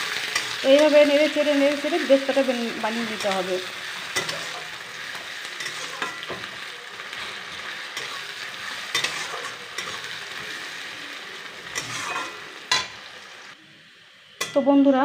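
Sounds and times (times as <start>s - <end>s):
onions sizzling in oil: 0.0s - 15.0s
spatula scraping and tapping pan: 5.6s - 6.6s, 7.9s - 10.1s, 11.7s - 13.0s.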